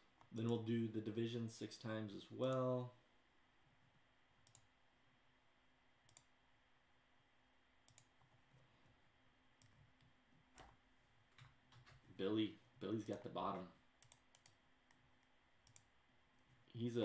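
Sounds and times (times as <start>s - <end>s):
computer mouse clicks: 2.4s - 2.6s, 4.4s - 4.7s, 6.1s - 6.3s, 7.9s - 8.3s, 14.0s - 15.9s.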